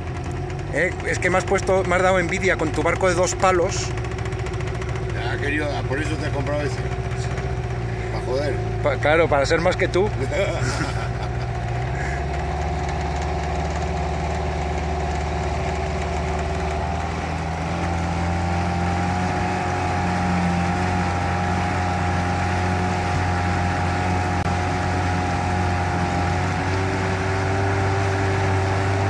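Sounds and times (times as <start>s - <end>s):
small boat motor running: 0.0s - 29.0s.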